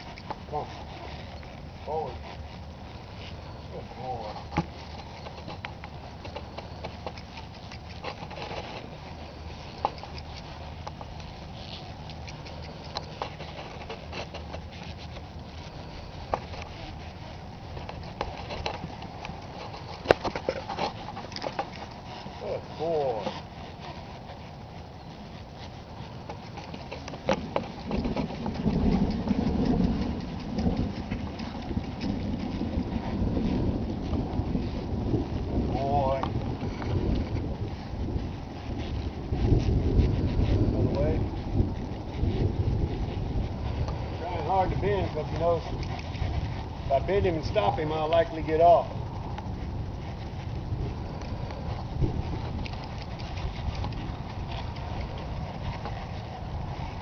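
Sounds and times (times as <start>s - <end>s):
hoof thuds on dirt: 0.0s - 57.0s
wind buffeting microphone: 0.0s - 57.0s
steady low rumble: 26.8s - 57.0s.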